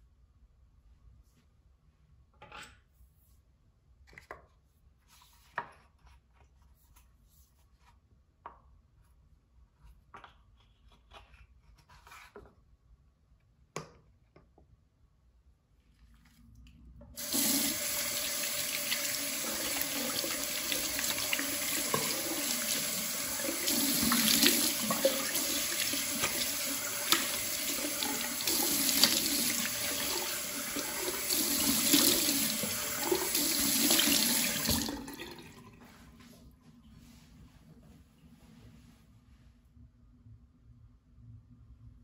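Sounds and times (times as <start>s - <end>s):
hands rubbed and rinsed: 17.2s - 35.0s
tap running into sink: 17.2s - 35.4s.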